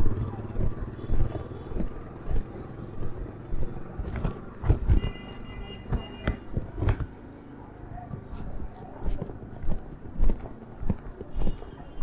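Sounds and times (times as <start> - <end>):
walking footsteps: 0.0 - 5.2, 8.2 - 12.0
auto-rickshaw engine rumble: 0.0 - 12.0.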